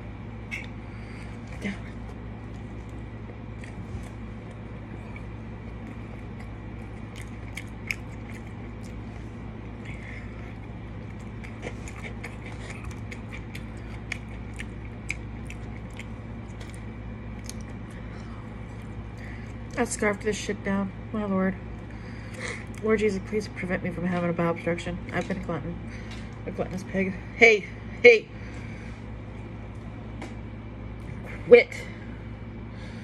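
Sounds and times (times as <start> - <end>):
steady low hum: 0.0 - 33.0
person chewing food: 0.4 - 19.8.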